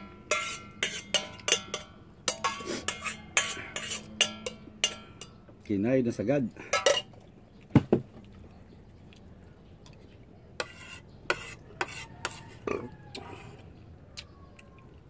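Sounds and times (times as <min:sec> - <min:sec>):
spoon scraping a plate: 0:00.0 - 0:05.4, 0:10.6 - 0:13.6.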